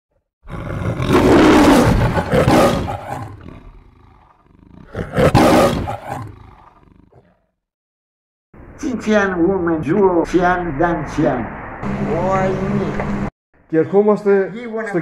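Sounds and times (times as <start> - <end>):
lion roaring: 0.4 - 7.5.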